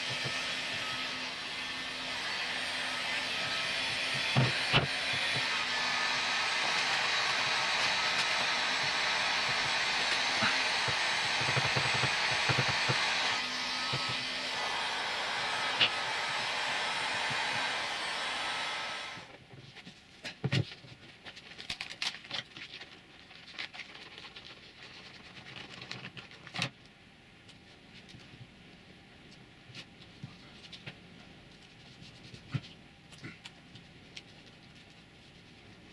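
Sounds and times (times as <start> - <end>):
heat gun blowing: 0.0 - 19.3.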